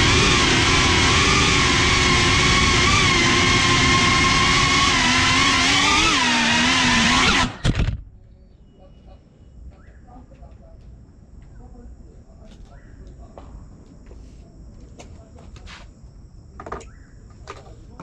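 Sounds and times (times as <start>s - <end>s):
quadcopter motors whining: 0.0s - 8.0s.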